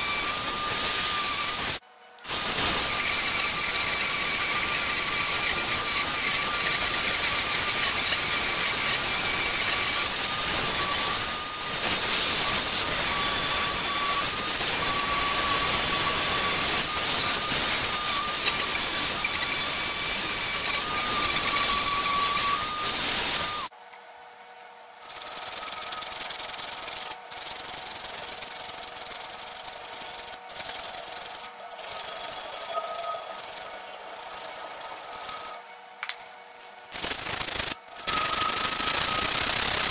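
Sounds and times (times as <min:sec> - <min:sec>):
rotary tool sanding metal: 0:00.0 - 0:23.7, 0:25.1 - 0:35.6, 0:36.9 - 0:39.9
sandpaper rubbed on metal by hand: 0:00.0 - 0:23.7.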